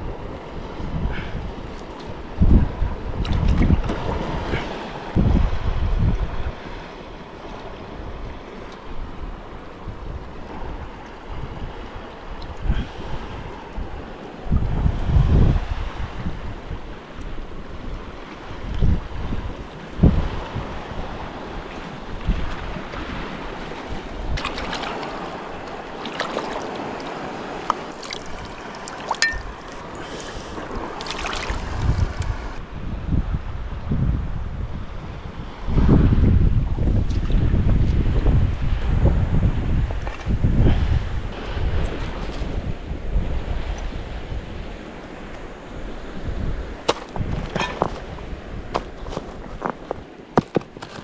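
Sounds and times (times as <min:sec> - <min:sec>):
surf and shallow water: 0:00.0 - 0:51.0
wind buffeting microphone: 0:00.0 - 0:51.0
knife scraping against rock: 0:46.9 - 0:48.1, 0:48.8 - 0:51.0.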